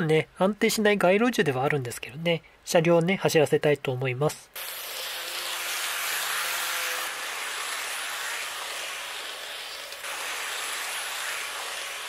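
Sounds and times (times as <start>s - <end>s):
model train motor whirring: 4.6s - 12.0s
model train wheels on rails: 4.6s - 12.0s.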